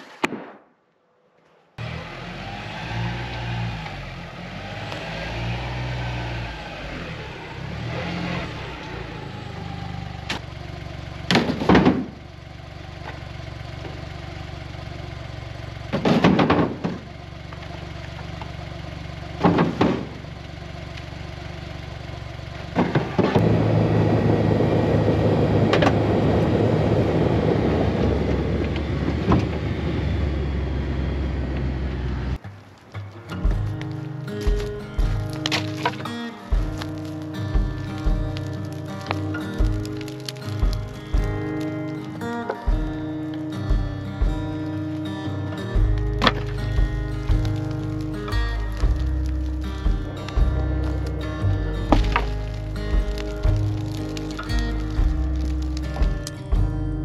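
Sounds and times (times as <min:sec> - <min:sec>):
utility vehicle engine running: 0:01.8 - 0:57.0
wooden boards clattering: 0:11.3 - 0:12.2, 0:15.9 - 0:17.1, 0:19.4 - 0:20.2
dense steady noise: 0:23.4 - 0:57.0.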